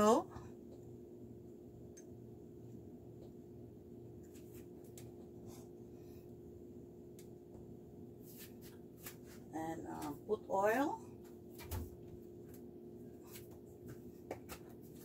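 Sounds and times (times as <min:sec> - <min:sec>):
steady low hum: 0:00.0 - 0:15.0
hands rubbing on counter: 0:08.2 - 0:09.5.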